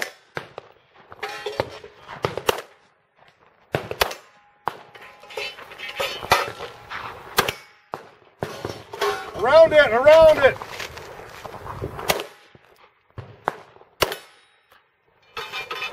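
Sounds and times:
bullets clanging on steel plates: 1.2s - 2.1s, 4.9s - 9.4s, 14.2s - 15.9s.

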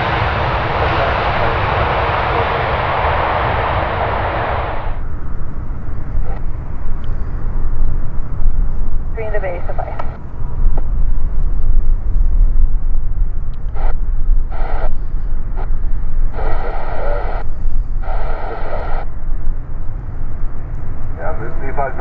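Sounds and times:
low rumble: 0.0s - 22.0s
tinny radio voice bursts: 16.4s - 17.4s, 18.0s - 19.0s.

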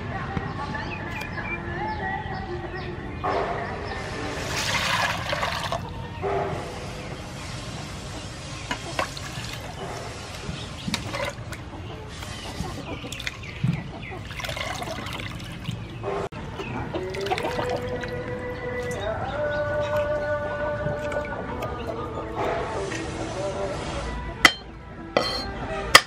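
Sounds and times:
water swishing and sloshing: 4.3s - 5.9s, 8.8s - 16.3s, 16.9s - 21.6s
water pouring into a bowl: 4.4s - 5.9s, 9.0s - 9.8s, 10.9s - 11.6s, 13.1s - 13.6s, 14.2s - 15.8s, 17.0s - 18.2s.

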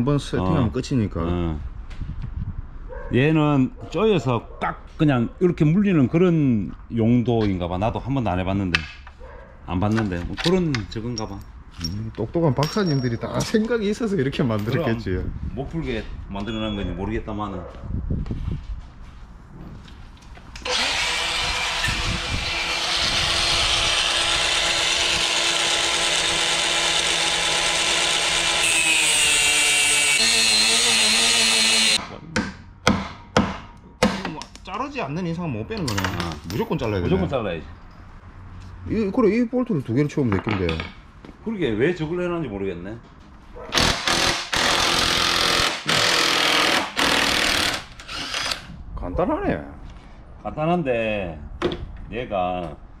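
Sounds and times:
angle grinder cutting bolt: 20.6s - 32.0s, 43.7s - 48.7s
impact wrench hammering: 30.0s - 34.4s, 43.7s - 48.6s.

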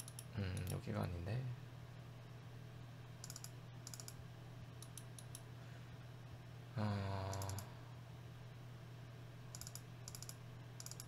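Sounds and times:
low electrical hum: 0.0s - 11.0s
mouse and keyboard clicking: 4.8s - 5.4s, 9.6s - 11.0s
man humming: 6.7s - 7.8s.

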